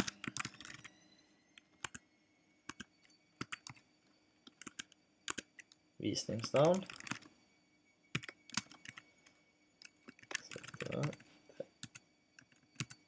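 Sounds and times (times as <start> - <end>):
keyboard typing: 0.0 - 0.9, 1.8 - 2.0, 2.7 - 3.8, 4.4 - 7.3, 8.1 - 13.0.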